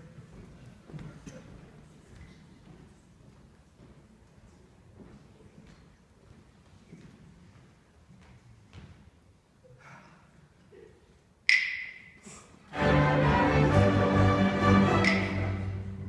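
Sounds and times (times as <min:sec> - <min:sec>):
string orchestra playing: 0:12.7 - 0:16.0.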